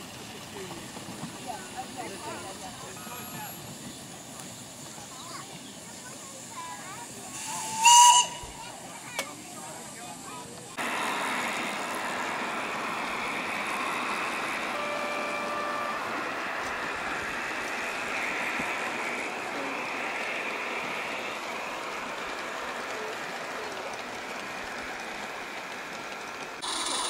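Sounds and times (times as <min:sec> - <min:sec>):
model train wheels rushing on rail: 0:00.0 - 0:27.0
short horn-like tone: 0:14.8 - 0:16.2.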